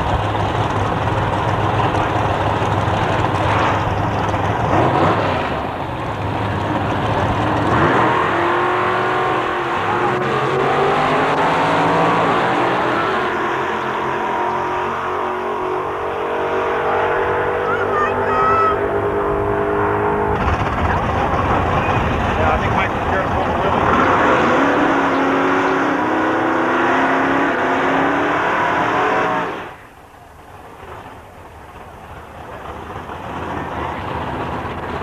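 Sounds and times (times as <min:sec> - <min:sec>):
racing car engines revving: 0:00.0 - 0:30.0, 0:31.8 - 0:35.0
racing cars accelerating hard: 0:01.8 - 0:29.8.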